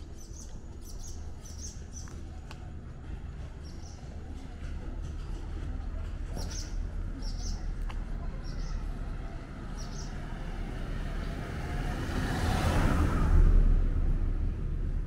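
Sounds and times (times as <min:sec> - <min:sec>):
small bird chirping: 0:00.0 - 0:02.2, 0:06.4 - 0:07.7
low street rumble: 0:00.0 - 0:15.0
vehicle approaching: 0:00.0 - 0:15.0.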